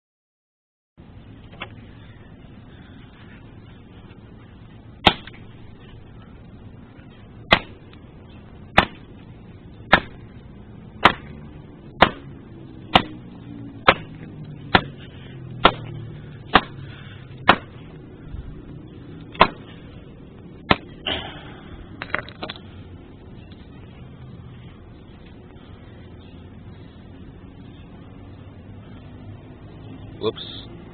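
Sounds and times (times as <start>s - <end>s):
hatchet chopping on device: 5.0s - 5.3s, 7.5s - 7.8s, 8.8s - 9.0s, 9.9s - 10.2s, 11.0s - 11.4s, 12.0s - 12.3s, 12.9s - 13.2s, 13.8s - 15.0s, 15.6s - 15.9s, 16.5s - 16.8s, 17.4s - 17.8s, 19.4s - 19.6s
pieces clattering: 22.0s - 22.6s.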